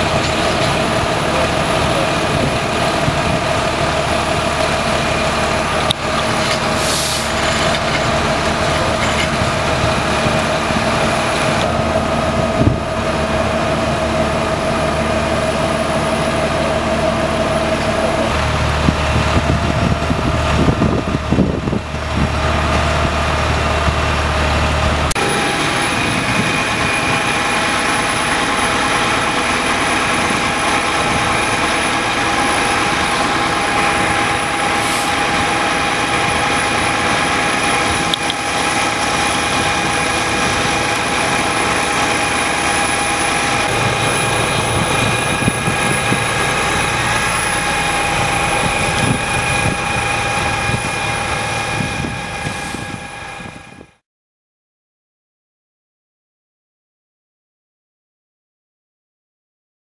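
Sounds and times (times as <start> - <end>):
machinery droning: 0.0 - 54.0
steady whining tones: 7.4 - 54.0.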